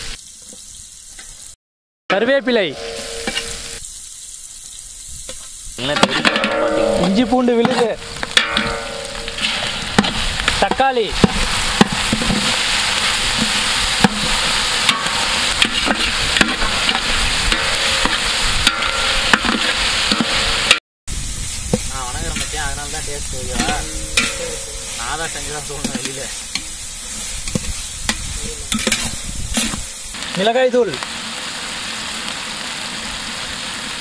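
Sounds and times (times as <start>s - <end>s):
vegetables sizzling in hot oil: 0.0s - 1.6s, 2.2s - 34.0s
metal ladle scraping a pot: 2.7s - 3.8s, 5.8s - 12.7s, 13.4s - 20.8s, 23.4s - 30.0s.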